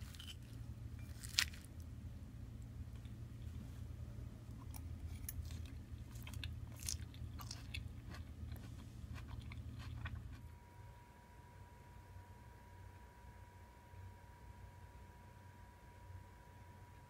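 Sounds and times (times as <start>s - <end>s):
chewing crisp salad: 0.0s - 1.7s, 4.5s - 10.4s.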